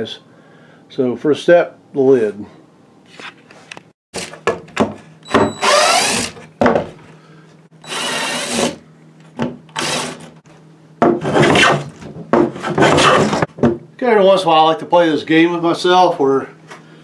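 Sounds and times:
cordless drill whining: 0:05.3 - 0:06.4, 0:07.8 - 0:08.8, 0:09.7 - 0:10.3
hand plane scraping wood: 0:12.5 - 0:13.5.

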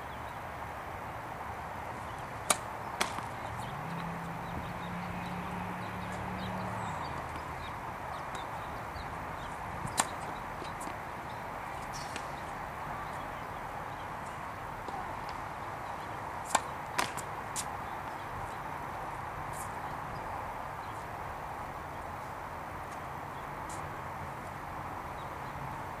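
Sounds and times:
tennis racket hitting ball: 0:02.4 - 0:05.4, 0:09.4 - 0:11.0, 0:16.4 - 0:17.7.

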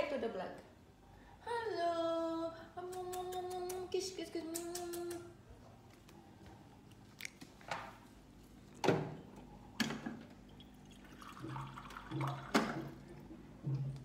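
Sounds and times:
wet mouth eating sounds: 0:06.8 - 0:07.6.

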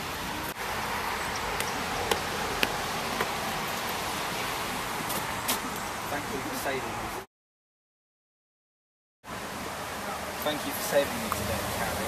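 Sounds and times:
outdoor background hiss: 0:00.0 - 0:07.3, 0:09.3 - 0:12.0.

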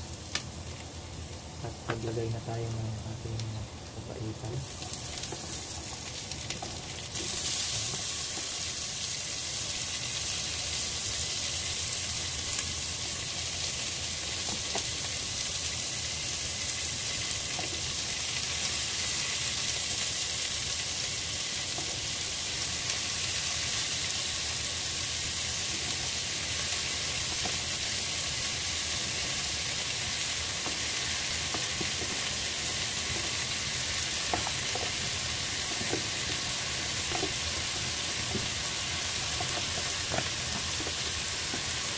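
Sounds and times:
meat sizzling in a pan: 0:00.0 - 0:41.9
stirring utensil taps: 0:30.5 - 0:33.4, 0:34.2 - 0:38.7, 0:39.3 - 0:41.8.

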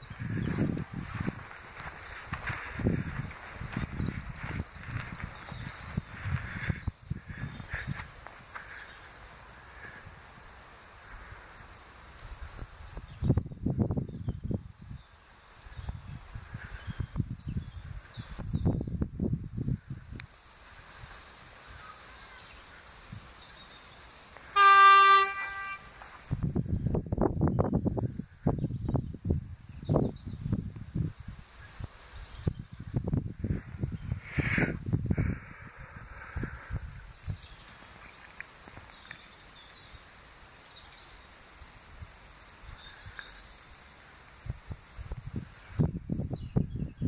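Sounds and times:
train horn blast: 0:24.5 - 0:26.0.

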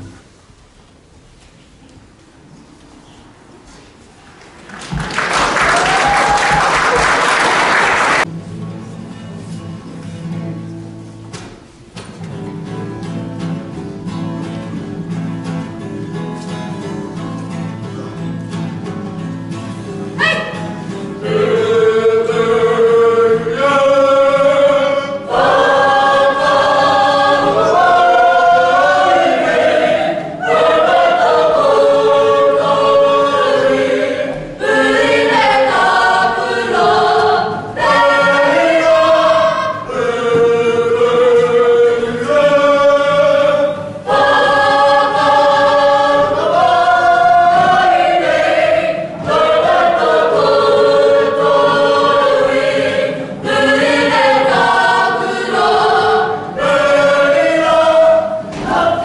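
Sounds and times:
choir singing: 0:20.2 - 0:59.0.

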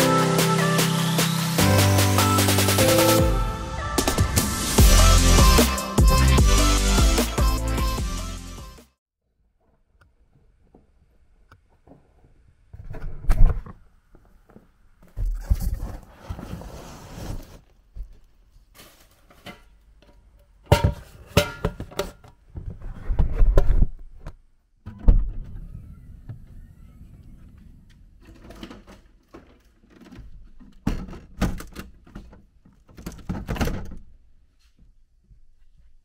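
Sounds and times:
box sliding on carpet: 0:15.8 - 0:17.6.

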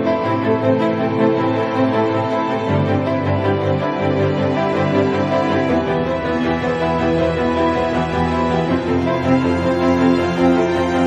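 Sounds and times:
music with sustained chords: 0:00.0 - 0:11.0.

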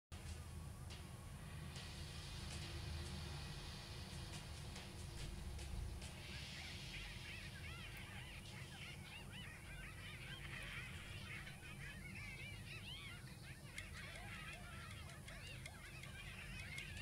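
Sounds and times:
chorus of animal cries: 0:06.4 - 0:17.0.

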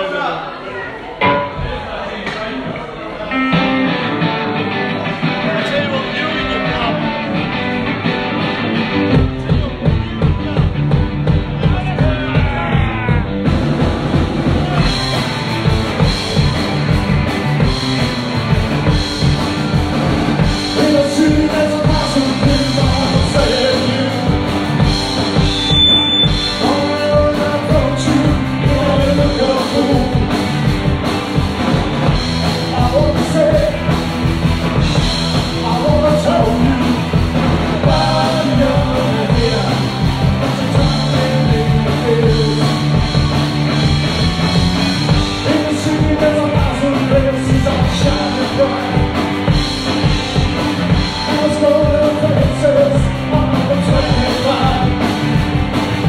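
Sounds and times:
drum kit: 0:01.2 - 0:56.0
bass guitar: 0:02.7 - 0:56.0
electric guitars: 0:03.2 - 0:56.0
lead singer singing: 0:20.4 - 0:30.6, 0:32.4 - 0:34.0, 0:35.0 - 0:43.2, 0:45.0 - 0:50.2, 0:50.8 - 0:55.3.

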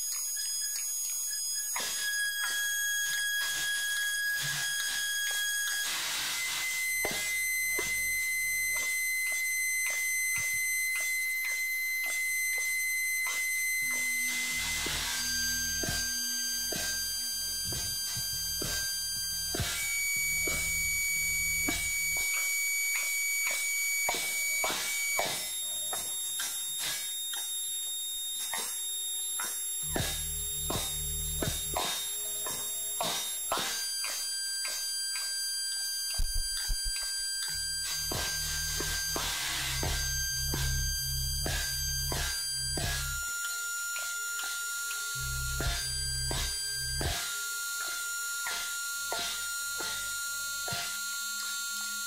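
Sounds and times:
steady high tone: 0:00.2 - 0:52.0
high whines: 0:01.8 - 0:52.0
low buzz: 0:02.2 - 0:52.0.

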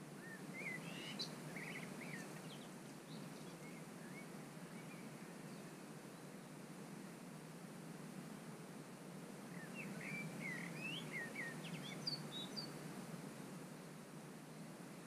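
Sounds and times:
songbird chirping: 0:00.2 - 0:05.8, 0:09.5 - 0:12.9.

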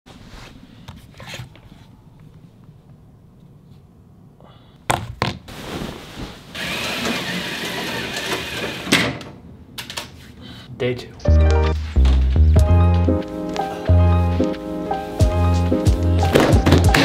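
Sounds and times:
curtains sliding open: 0:05.5 - 0:08.9.

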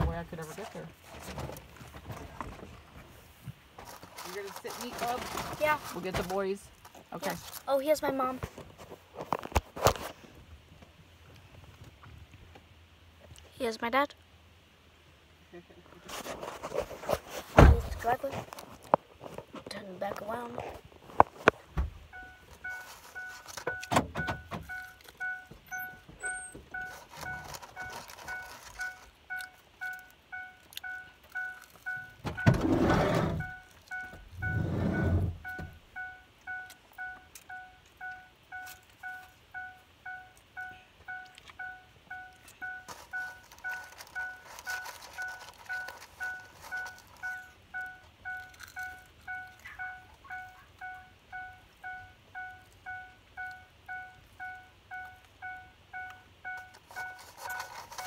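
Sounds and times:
loud thumps: 0:17.5 - 0:18.0
vehicle warning chime dinging: 0:22.0 - 0:58.0.

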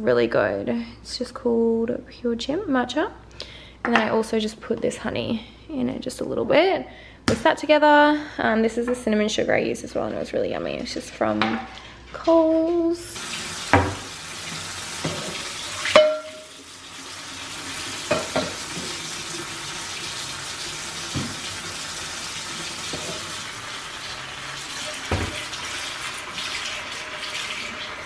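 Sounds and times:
tap running into metal sink: 0:13.6 - 0:16.5, 0:18.1 - 0:19.0, 0:21.1 - 0:21.5, 0:24.9 - 0:25.7
dishes clinking against sink: 0:13.7 - 0:14.1, 0:15.0 - 0:16.6, 0:18.1 - 0:19.0, 0:24.9 - 0:25.6.

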